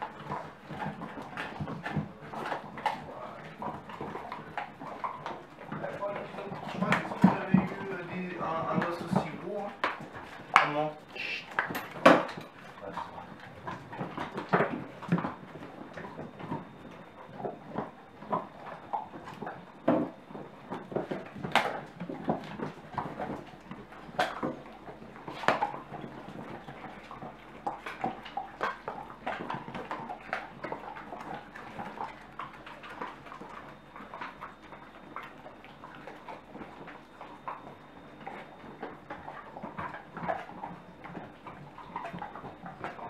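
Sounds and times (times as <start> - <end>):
dogs gnawing on bones: 0.0 - 43.0.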